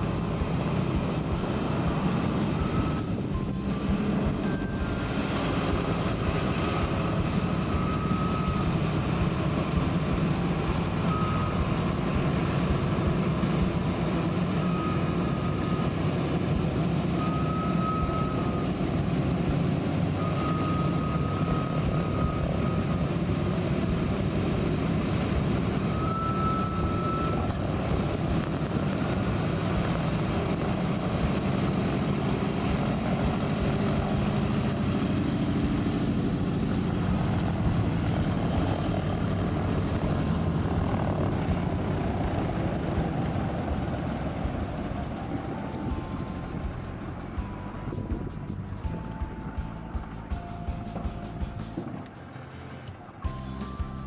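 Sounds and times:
propeller plane engines running: 0.0 - 54.0.

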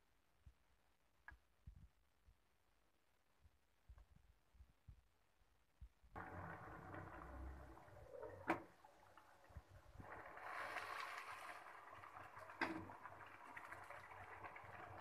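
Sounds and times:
thick gravy bubbling: 6.2 - 15.0.

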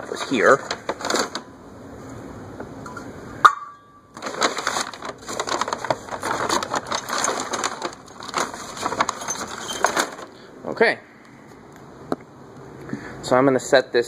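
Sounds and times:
paper bag rustling: 0.0 - 1.5, 4.2 - 10.5
small hard parts clicking: 4.2 - 10.4.

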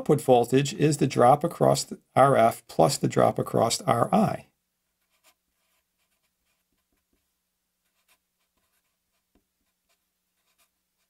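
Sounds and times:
marker scratching on paper: 5.0 - 11.0.

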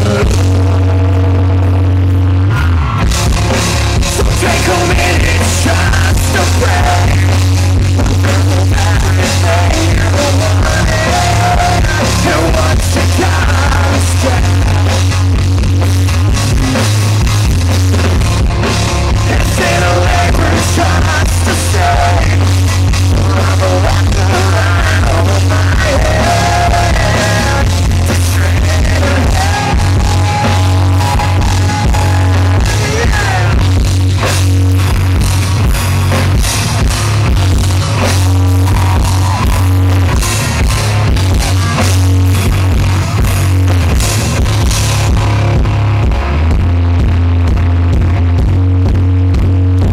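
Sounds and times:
man singing lead vocals: 0.0 - 1.7, 3.8 - 15.6, 19.1 - 33.9
distorted electric guitars: 0.0 - 49.9
live rock band: 0.0 - 49.9.

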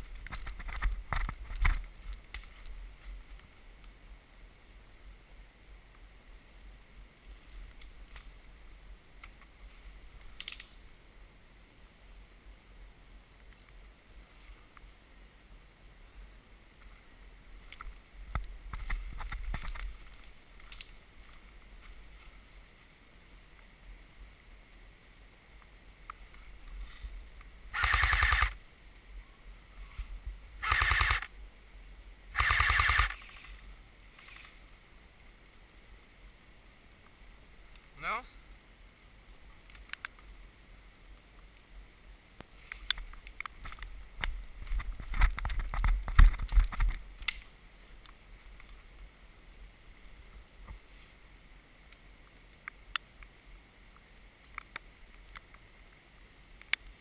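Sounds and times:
airsoft gun full-auto bursts: 27.7 - 28.6, 30.6 - 31.3, 32.3 - 33.4.

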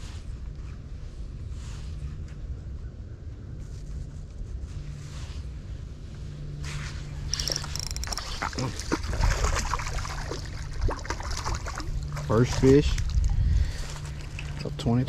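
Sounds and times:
wind rumble on microphone: 0.0 - 15.0
fishing reel clicking: 7.3 - 8.5
fish splashing and thrashing in water: 7.3 - 14.7.

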